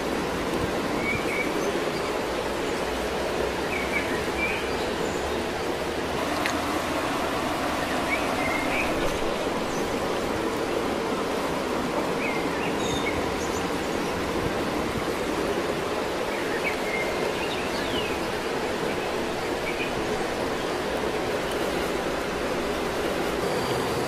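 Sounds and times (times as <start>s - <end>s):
flowing water rushing: 0.0s - 24.0s.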